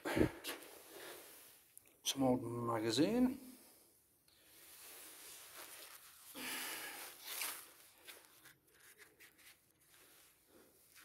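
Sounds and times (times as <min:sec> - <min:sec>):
rustling and scuffing: 0:04.6 - 0:11.0.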